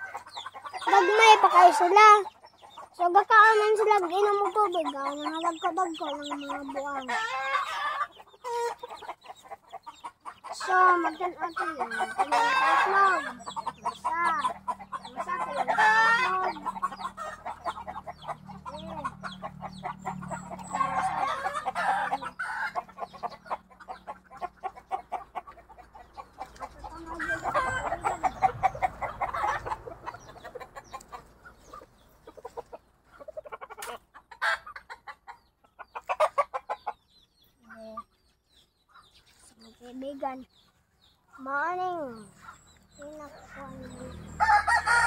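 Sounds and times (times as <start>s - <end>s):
chickens clucking: 0.0s - 45.0s
rooster crowing: 44.4s - 45.0s.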